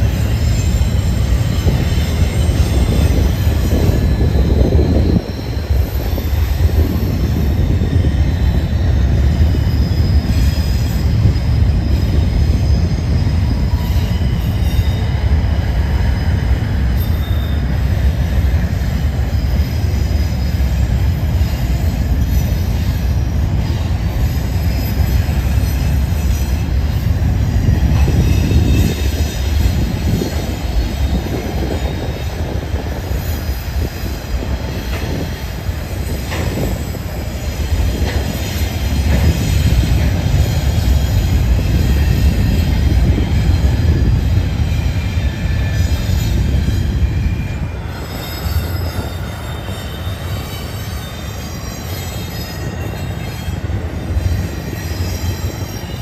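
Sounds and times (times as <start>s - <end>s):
high-pitched wheel squeal: 0.0s - 56.0s
train wheels rumbling on rail: 0.0s - 56.0s
wheels clacking over rail joints: 23.5s - 44.1s.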